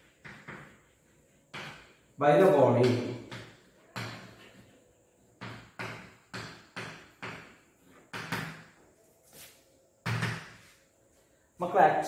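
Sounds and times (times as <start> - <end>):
chalk tapping and scraping on board: 0.0 - 8.6.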